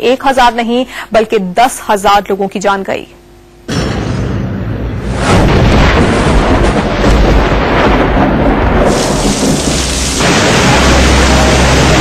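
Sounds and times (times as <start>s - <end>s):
heavy rain pouring: 7.8s - 12.0s.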